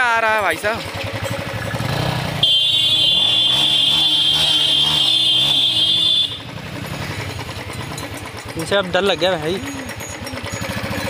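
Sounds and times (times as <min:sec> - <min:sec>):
motorcycle engine running: 0:00.0 - 0:11.0
motorcycle horn blast: 0:01.8 - 0:06.8.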